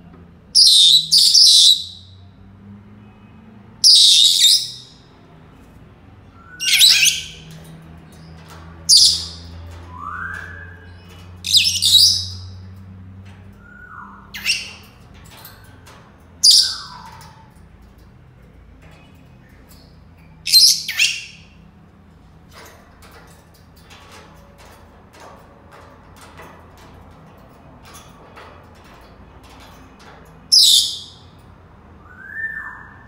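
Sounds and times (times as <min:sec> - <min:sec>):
parrots gliding whistles: 0:00.6 - 0:02.1, 0:03.8 - 0:05.0, 0:06.4 - 0:07.4, 0:08.9 - 0:12.5, 0:32.0 - 0:33.0.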